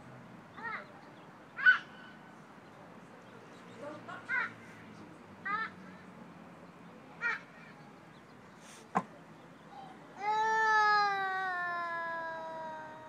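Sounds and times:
toddler high-pitched aaah call: 9.8s - 13.0s.

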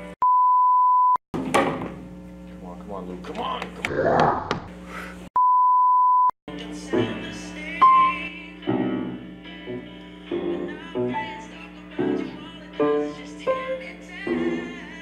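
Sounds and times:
censor bleep: 0.2s - 1.2s, 5.4s - 6.3s
piano chords and notes: 6.6s - 15.0s.

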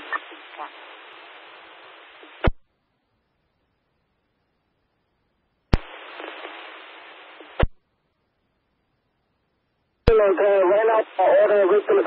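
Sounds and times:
radio static: 0.0s - 2.6s, 5.8s - 7.8s, 10.1s - 12.0s
radio transmission click: 0.0s - 2.6s, 5.7s - 7.8s, 10.0s - 12.0s.

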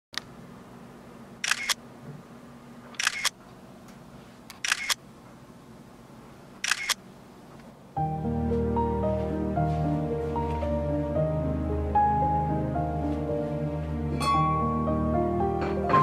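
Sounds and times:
camera shutter double click: 1.4s - 1.8s, 3.0s - 3.3s, 4.6s - 5.0s, 6.6s - 7.0s
soft music: 8.0s - 16.0s.

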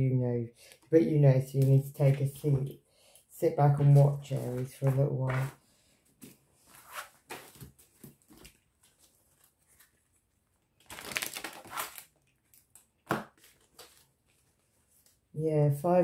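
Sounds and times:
cards shuffling: 10.8s - 15.2s.

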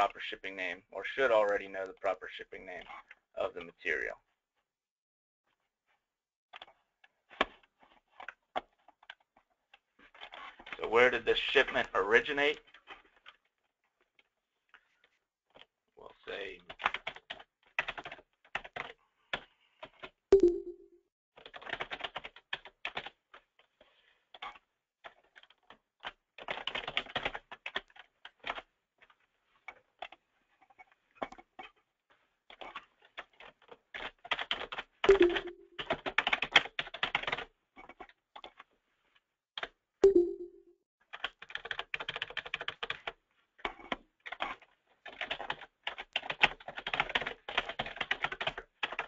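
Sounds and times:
keyboard typing clicks: 20.4s - 20.9s, 35.1s - 36.4s, 40.0s - 43.0s.

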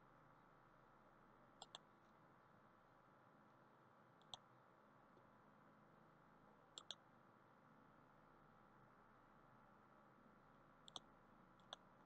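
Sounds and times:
faint computer mouse clicks: 1.6s - 1.9s, 4.2s - 4.5s, 6.7s - 7.0s, 10.8s - 11.9s.

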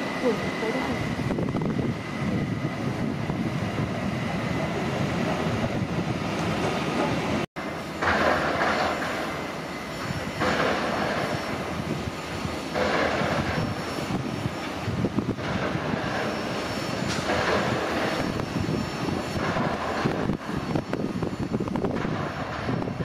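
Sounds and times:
electric train rumbling: 0.0s - 23.0s
train hissing: 0.0s - 23.0s.

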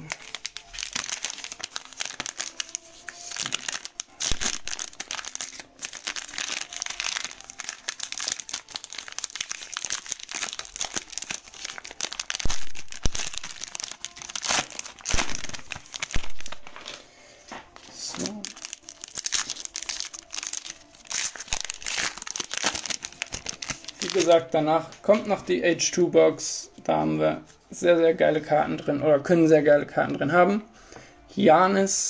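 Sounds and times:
plastic wrapper crinkling and tearing: 0.0s - 25.5s.

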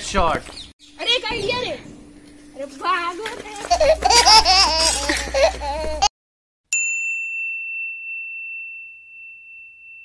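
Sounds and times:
bright ding: 6.7s - 10.0s.

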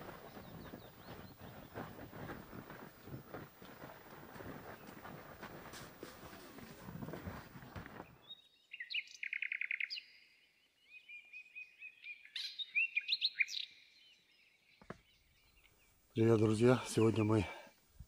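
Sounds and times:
inflatable boat dragging on dirt: 0.0s - 8.2s
footsteps on dirt path: 0.0s - 8.3s
songbirds singing: 0.0s - 18.0s.

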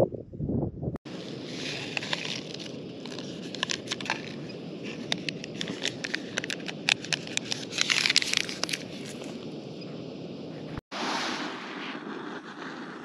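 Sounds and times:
steady rushing hiss: 1.1s - 13.0s
paper sachet crinkling: 1.2s - 9.4s.

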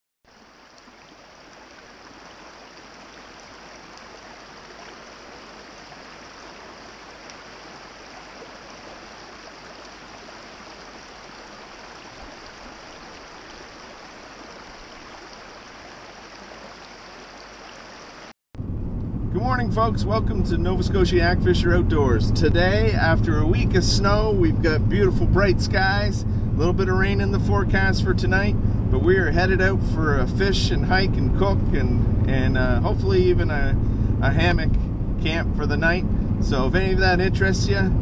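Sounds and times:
brook running over rocks: 0.3s - 18.3s.

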